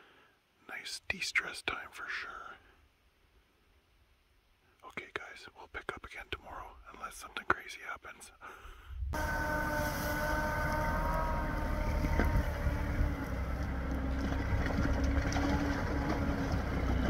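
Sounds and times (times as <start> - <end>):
vehicle engine low rumble: 9.0 - 17.0
faint high whine: 9.2 - 17.0.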